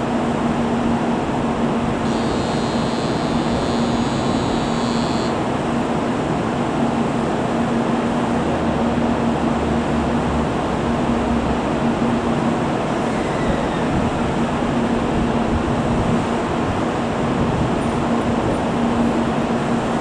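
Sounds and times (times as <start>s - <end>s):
train equipment humming: 0.0s - 5.5s.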